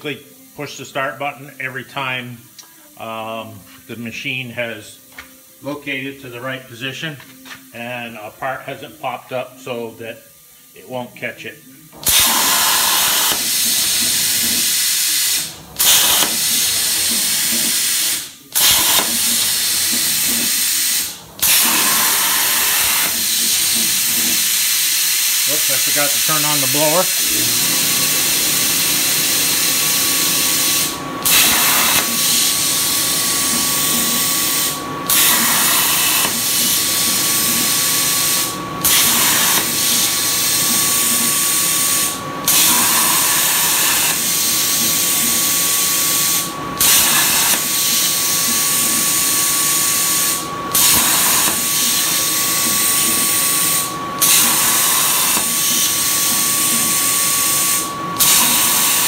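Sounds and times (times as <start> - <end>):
plasma cutter torch hissing: 5.5 - 6.7, 11.9 - 59.0.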